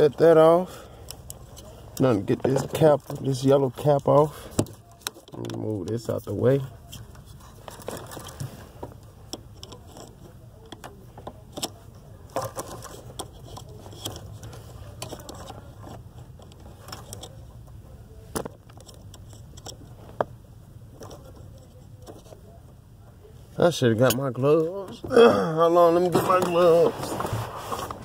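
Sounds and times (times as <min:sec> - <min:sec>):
screwdriver clicking and scraping plastic: 0:09.3 - 0:17.4.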